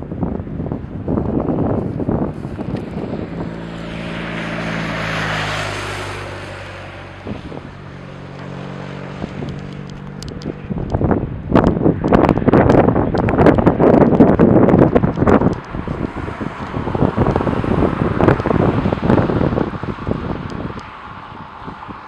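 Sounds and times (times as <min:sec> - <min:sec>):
motorcycle passing: 0:00.0 - 0:22.0
wind buffeting microphone: 0:00.0 - 0:22.0.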